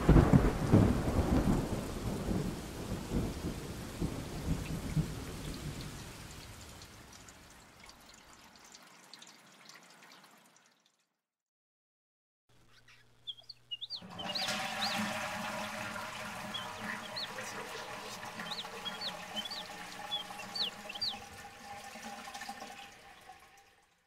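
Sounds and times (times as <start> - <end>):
small birds chirping: 12.5 - 21.3
toilet flushing: 14.0 - 24.0.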